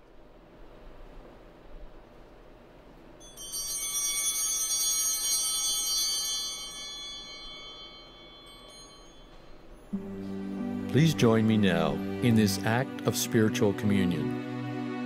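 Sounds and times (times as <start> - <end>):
altar bells ringing: 3.2 - 13.8.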